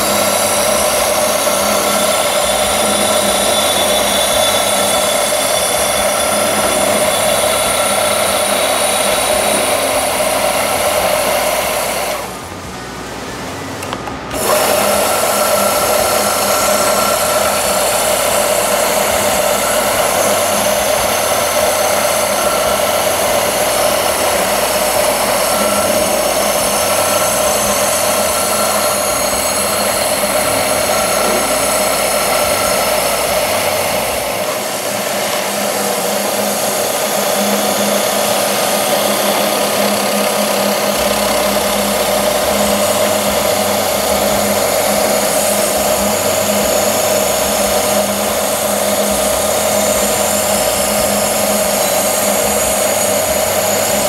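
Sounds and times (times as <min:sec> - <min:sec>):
abrasive belt grinding metal: 0:00.0 - 0:12.7, 0:14.2 - 0:54.0
high whine: 0:00.0 - 0:54.0
machine hum: 0:00.0 - 0:54.0.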